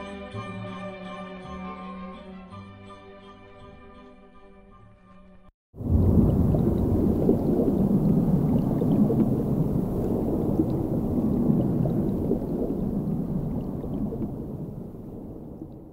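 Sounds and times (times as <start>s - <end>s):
deep rumbling: 5.8s - 15.9s.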